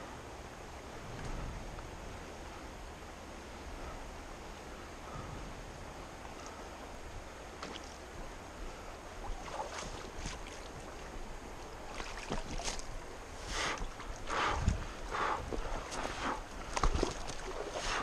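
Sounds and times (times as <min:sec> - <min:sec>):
river water rushing: 0:05.6 - 0:18.0.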